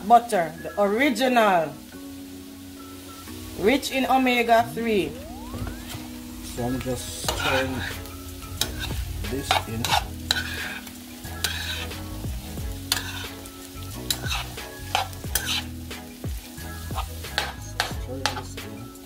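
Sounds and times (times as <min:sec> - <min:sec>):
potatoes sizzling in fat: 0:00.0 - 0:19.0
metal spoon scraping a frying pan: 0:07.2 - 0:15.8, 0:16.9 - 0:17.6.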